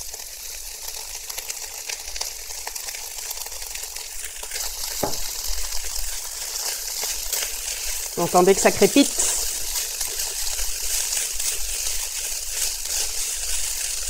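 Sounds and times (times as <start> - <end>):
rice sizzling in hot oil: 0.0 - 14.0
spatula stirring in a wok: 4.4 - 14.0
knock: 5.0 - 5.2.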